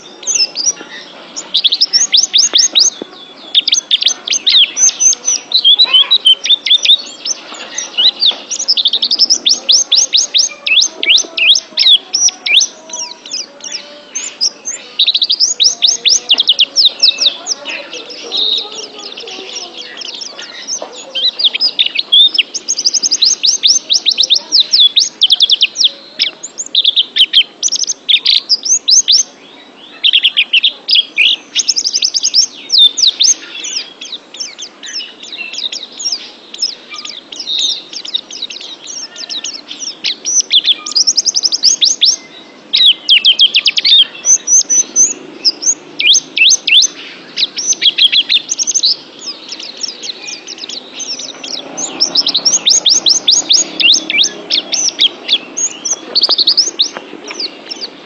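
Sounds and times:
bird twittering high chirps: 0.0 - 58.0.

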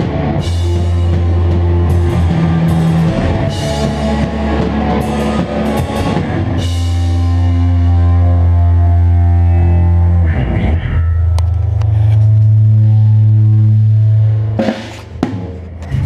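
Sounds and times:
rock band playing live: 0.0 - 11.8.

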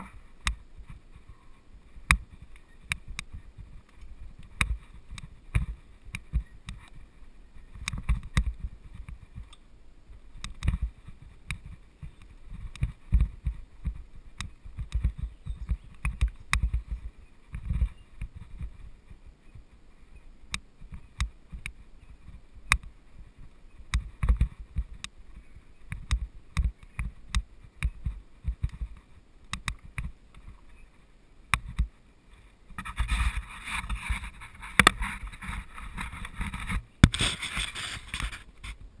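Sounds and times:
tyres crackling through dry leaves: 32.4 - 38.8.

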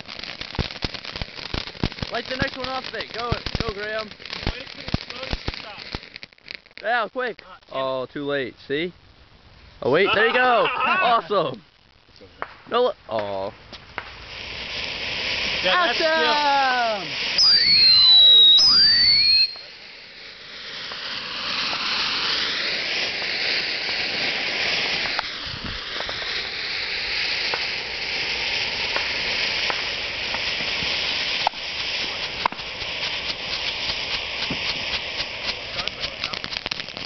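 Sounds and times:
firework pops and crackling: 0.0 - 8.1, 8.7 - 37.0
spark fountain hissing: 0.0 - 8.9, 9.7 - 37.0
firework whistle falling in pitch: 17.4 - 19.7.

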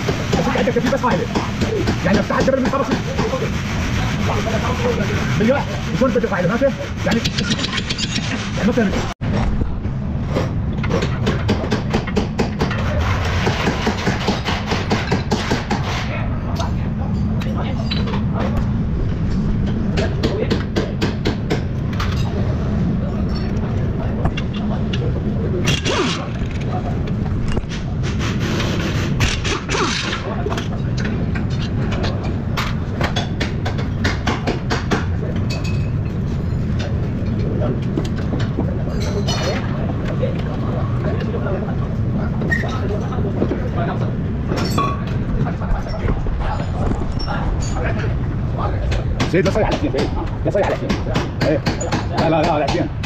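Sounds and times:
short squeak: 42.4 - 42.8.

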